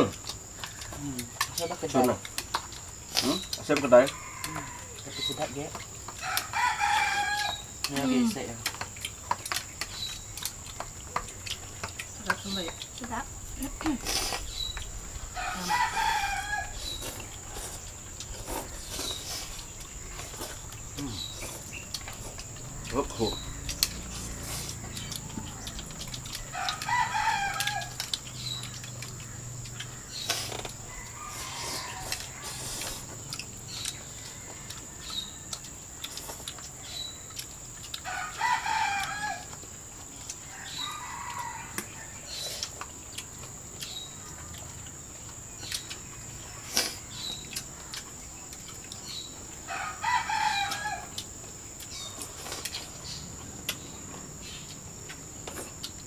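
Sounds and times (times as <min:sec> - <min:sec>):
rooster crowing: 0:03.8 - 0:07.8, 0:15.1 - 0:19.1, 0:22.7 - 0:33.1, 0:34.0 - 0:35.5, 0:38.0 - 0:39.6, 0:40.4 - 0:42.4, 0:49.6 - 0:51.2
bird chirps: 0:18.7 - 0:26.8.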